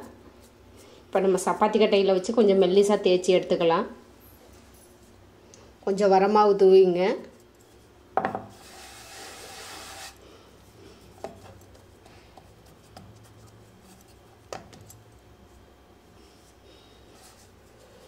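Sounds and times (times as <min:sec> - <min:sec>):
flour rubbing on wood: 0:08.5 - 0:10.2.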